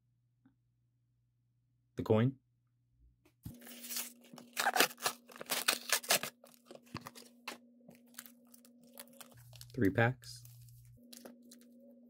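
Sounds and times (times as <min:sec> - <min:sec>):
plastic packaging crinkling and tearing: 0:03.5 - 0:11.8
steady low hum: 0:03.5 - 0:12.0.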